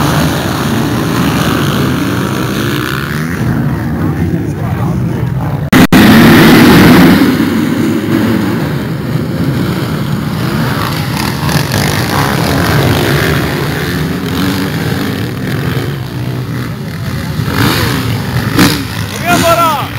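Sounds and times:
motocross bikes revving: 0.0 - 19.9.

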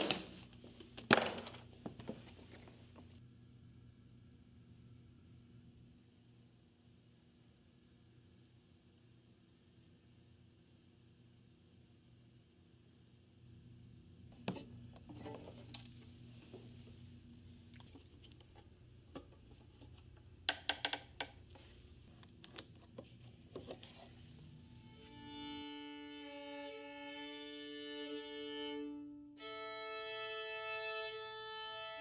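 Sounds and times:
handling noises: 0.0 - 3.2
solo violin long notes: 24.8 - 32.0.

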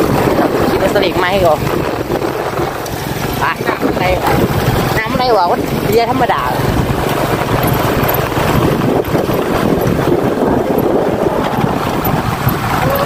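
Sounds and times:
vehicle engine running: 0.0 - 13.0
wind noise on microphone: 0.0 - 13.0.

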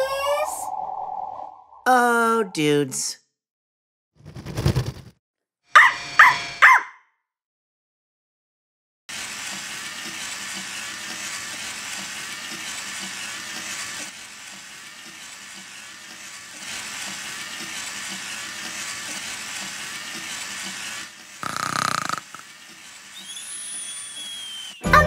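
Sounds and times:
toy robot motors whirring: 9.1 - 24.8.

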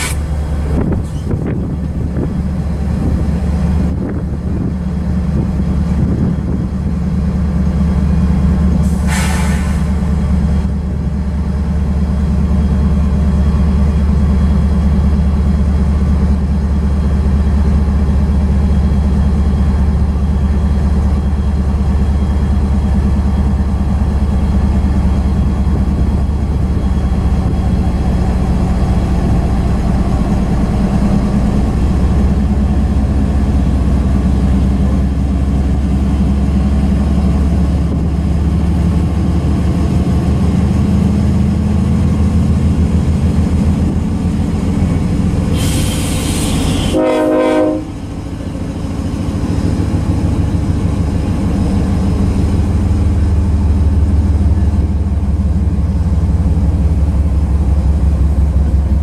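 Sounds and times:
train cars clattering on rails: 0.0 - 10.7
diesel locomotive rumble: 0.0 - 59.0.

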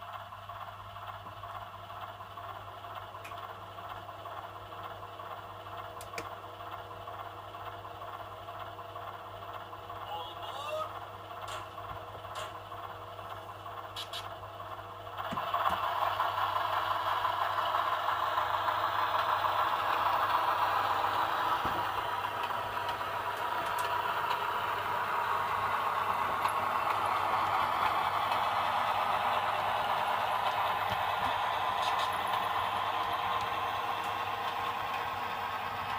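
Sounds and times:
model railcar running on track: 0.0 - 35.9.

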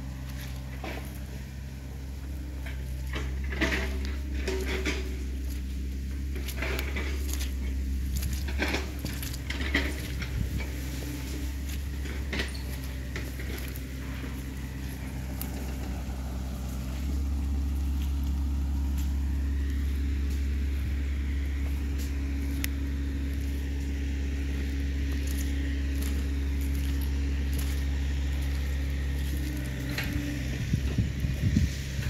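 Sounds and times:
engine humming: 0.0 - 32.0.

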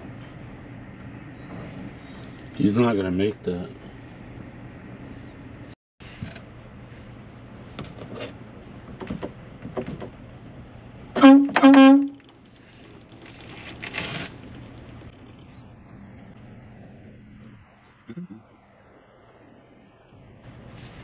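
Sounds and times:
truck engine idling: 0.0 - 21.0
truck horn blasts: 11.2 - 12.2.

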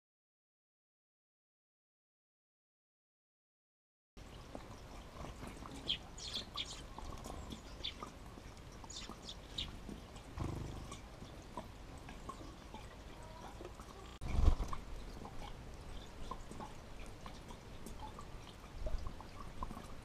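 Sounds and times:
small birds chirping: 4.2 - 19.9.

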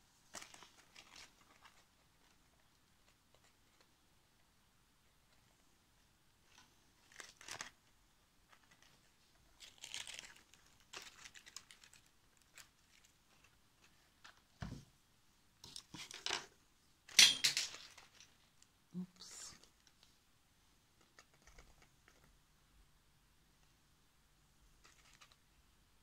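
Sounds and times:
paper rustling and crinkling: 0.3 - 3.9, 6.4 - 14.5, 17.7 - 18.7, 24.8 - 25.5.

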